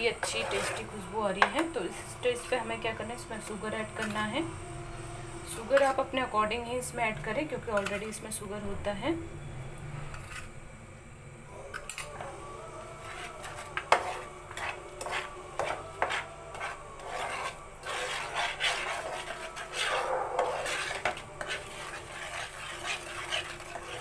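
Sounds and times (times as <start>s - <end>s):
metal spatula scraping steel pan: 0.0s - 2.7s, 7.7s - 8.2s, 12.9s - 24.0s.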